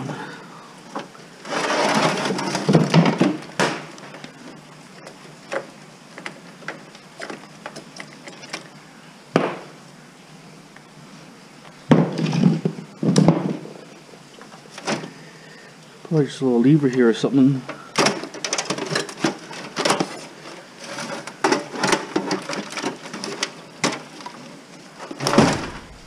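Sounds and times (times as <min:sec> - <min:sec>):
computer case parts clattering: 0:18.0 - 0:20.2, 0:25.2 - 0:26.0.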